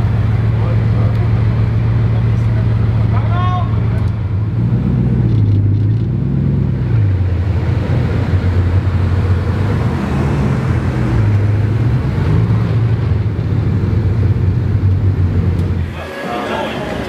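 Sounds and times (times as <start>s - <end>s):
car engine droning: 0.0s - 17.0s.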